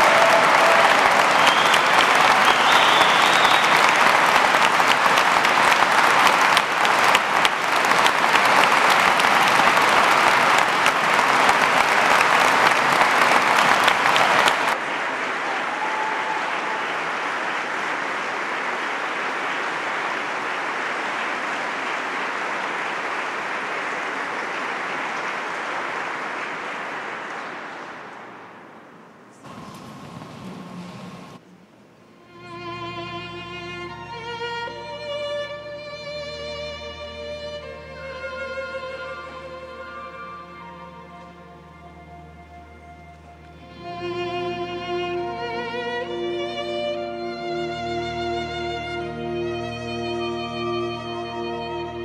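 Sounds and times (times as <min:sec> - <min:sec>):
crowd applauding: 0:00.0 - 0:28.3, 0:29.4 - 0:31.4.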